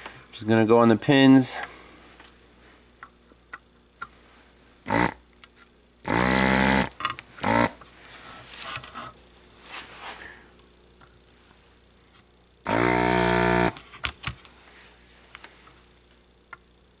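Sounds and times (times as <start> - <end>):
desoldering vacuum pump bursts: 4.8 - 5.2, 6.0 - 7.8, 12.6 - 13.8.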